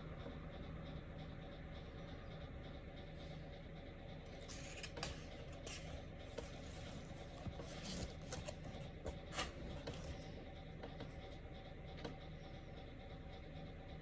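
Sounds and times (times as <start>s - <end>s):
low room hum: 0.0s - 14.0s
book pages rustling: 4.5s - 10.2s.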